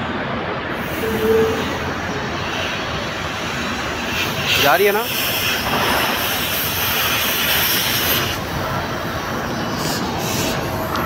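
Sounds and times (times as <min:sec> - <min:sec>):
compressed air hissing: 0:00.8 - 0:11.0.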